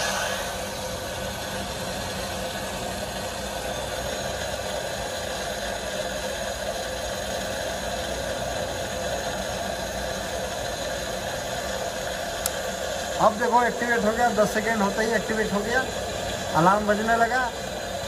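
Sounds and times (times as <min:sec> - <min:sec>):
water rushing through pipe: 0:00.0 - 0:18.0.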